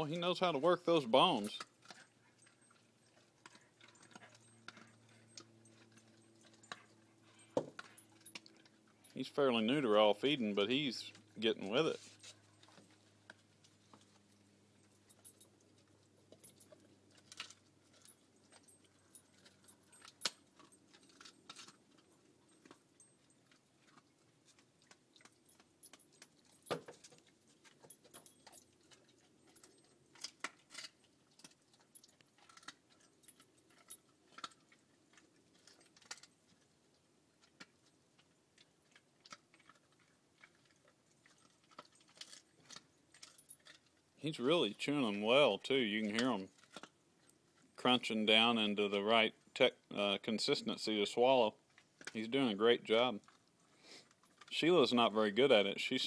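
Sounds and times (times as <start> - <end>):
dog crunching bones: 1.1 - 44.2, 45.1 - 47.8, 51.6 - 52.6, 53.2 - 55.7.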